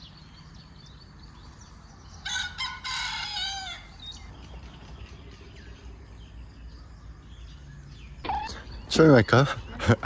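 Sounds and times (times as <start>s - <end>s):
small birds chirping: 0.0s - 10.0s
rooster crowing: 2.2s - 4.0s.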